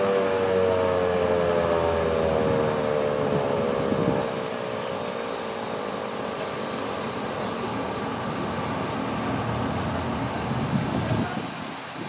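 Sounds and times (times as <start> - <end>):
siren winding down: 0.0 - 5.0
road vehicle rumble: 0.0 - 12.0.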